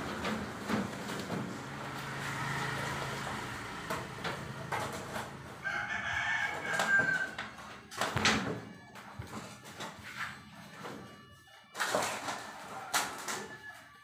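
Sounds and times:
rooster crowing: 5.6s - 7.4s, 12.3s - 14.0s.

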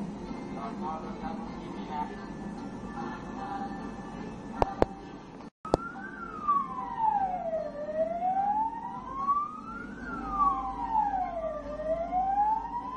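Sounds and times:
siren wailing: 5.7s - 12.9s.

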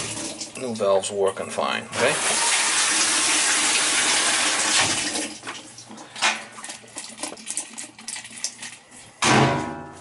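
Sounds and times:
water rushing through valve: 2.0s - 5.3s.

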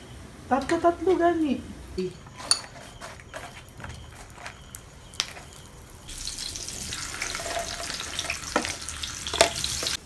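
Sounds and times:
frying sizzle: 4.1s - 10.0s.

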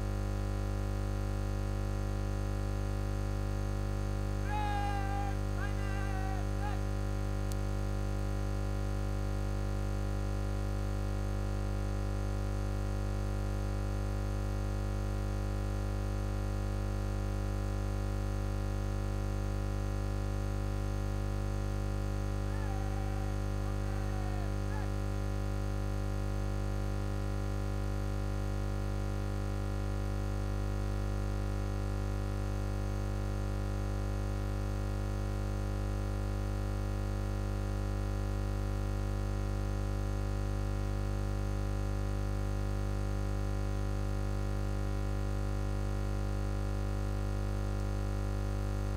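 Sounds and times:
electrical mains hum: 0.0s - 29.1s.

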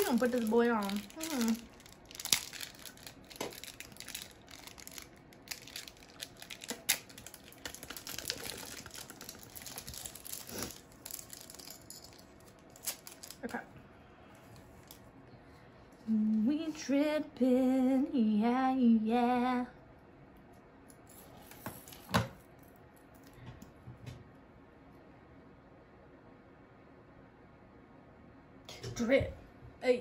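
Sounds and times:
plastic packaging crinkling: 0.0s - 13.6s.

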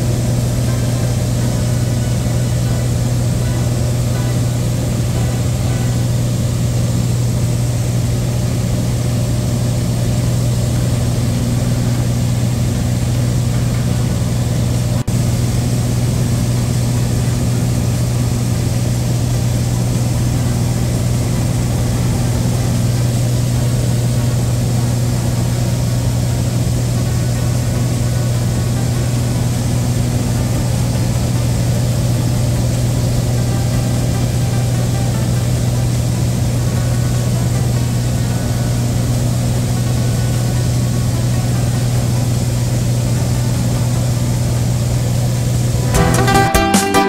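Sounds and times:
propeller plane engine droning: 0.0s - 46.0s.

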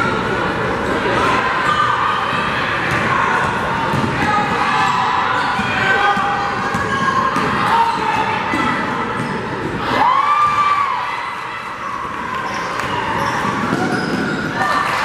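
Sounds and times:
voices in echoing gym: 0.0s - 15.0s
basketball bouncing: 2.3s - 4.3s
sneakers squeaking on floor: 5.4s - 9.8s, 11.9s - 15.0s.

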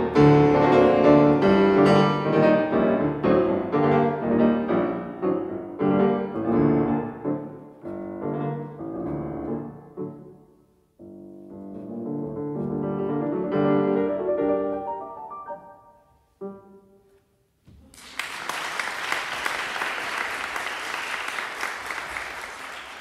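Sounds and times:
grand piano playing: 0.0s - 17.3s
audience applause: 17.9s - 23.0s.

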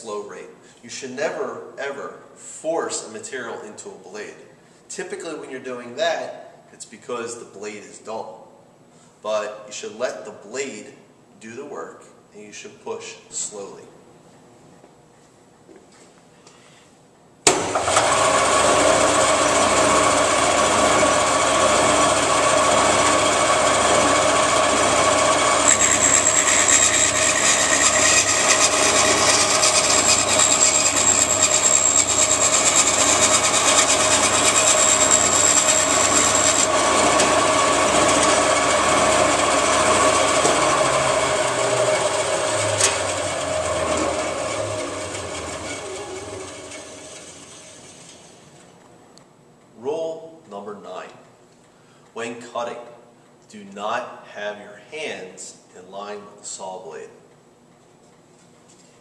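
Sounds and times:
band saw running: 17.5s - 48.6s
saw blade cutting wood whine: 17.7s - 48.5s.

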